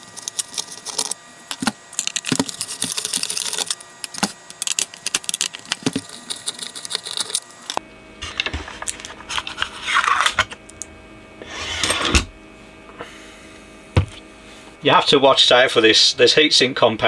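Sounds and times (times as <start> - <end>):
circuit board scraping on metal: 0.0 - 7.5.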